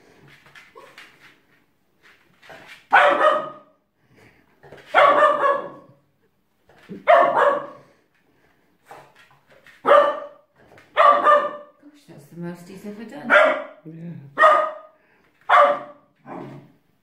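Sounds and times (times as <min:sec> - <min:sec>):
puppy barking: 0:02.9 - 0:03.8, 0:04.9 - 0:06.0, 0:06.9 - 0:07.8, 0:09.8 - 0:11.8, 0:13.3 - 0:13.8, 0:14.4 - 0:16.7.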